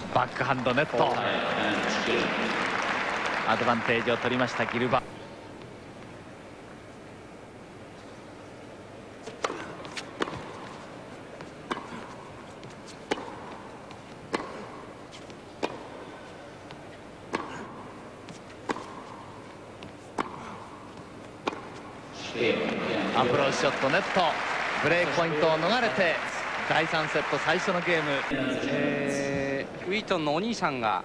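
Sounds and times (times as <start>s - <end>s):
low arena hush: 0.0s - 31.0s
racket hitting tennis ball: 9.2s - 24.1s.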